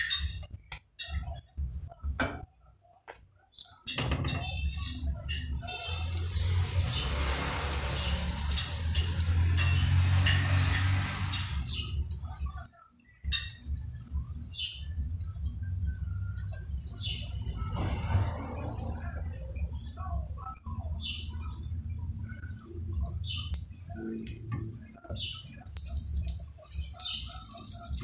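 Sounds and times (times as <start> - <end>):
egg sizzling in a frying pan: 5.8 - 12.6, 22.8 - 28.0.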